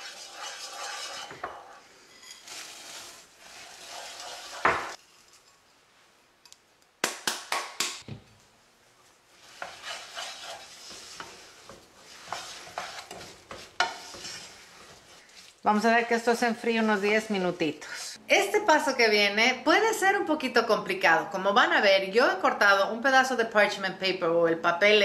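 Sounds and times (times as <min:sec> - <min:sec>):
wooden spoon scraping and stirring: 0:00.0 - 0:06.1, 0:08.9 - 0:18.2
nuts poured into a saucepan: 0:02.3 - 0:05.4.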